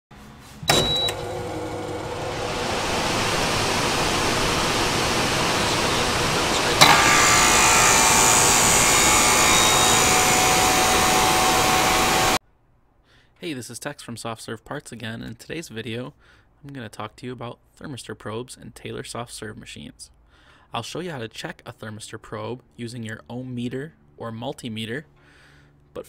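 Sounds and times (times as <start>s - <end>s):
noisy rush: 1.4s - 12.4s
sharp hit: 1.8s - 12.4s.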